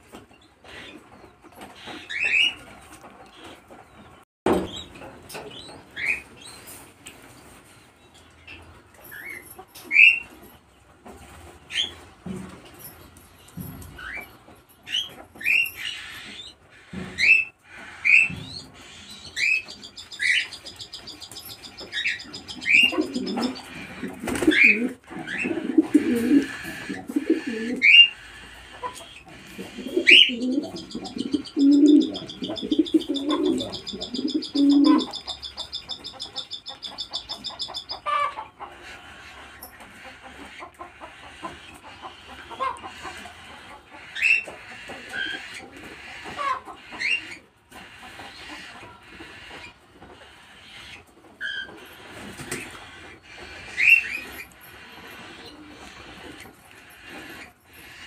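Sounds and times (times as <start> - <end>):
cockatiels chirping: 14.9 - 43.2, 44.0 - 58.0
pigeons cooing: 15.5 - 58.0.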